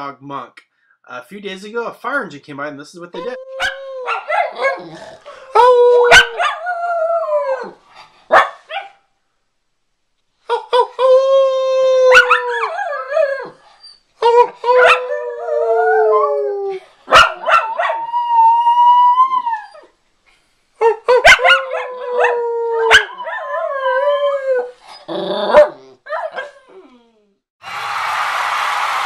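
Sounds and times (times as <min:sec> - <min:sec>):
dogs howling: 0:03.3 - 0:07.8, 0:11.0 - 0:13.6, 0:14.2 - 0:19.8, 0:21.1 - 0:24.7
dogs barking: 0:03.6 - 0:04.8, 0:06.1 - 0:06.6, 0:08.3 - 0:09.0, 0:17.1 - 0:18.0, 0:21.2 - 0:21.9.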